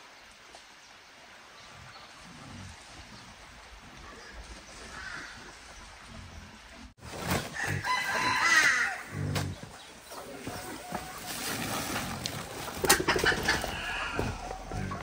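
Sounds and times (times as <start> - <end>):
rooster crowing: 7.6 - 9.1.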